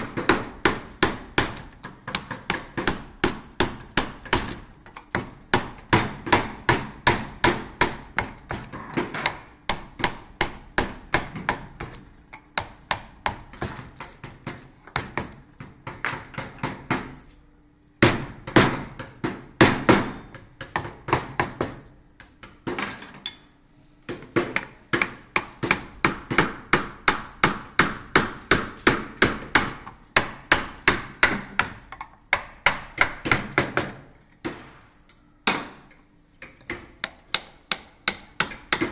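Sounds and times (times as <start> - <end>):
mallet knocking on carving gouge: 0.0 - 17.1, 24.1 - 34.8, 36.4 - 38.9.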